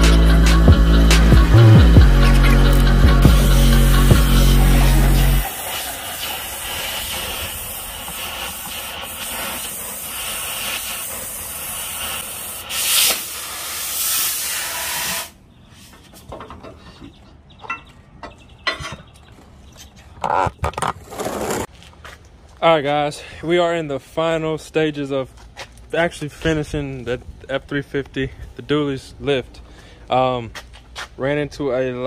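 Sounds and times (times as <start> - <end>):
cutting torch hissing: 2.4 - 15.4
rushes of gas: 2.4 - 15.4.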